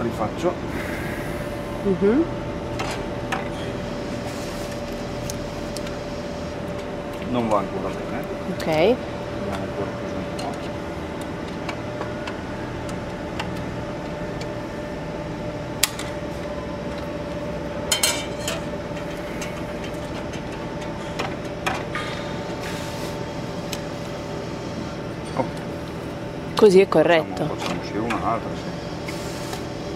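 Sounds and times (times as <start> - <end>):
steady mechanical hum: 0.0 - 29.9.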